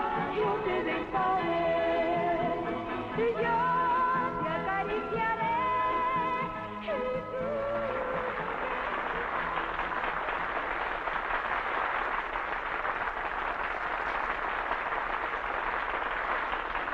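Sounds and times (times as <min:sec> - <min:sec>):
audience applauding: 0:06.9 - 0:16.9.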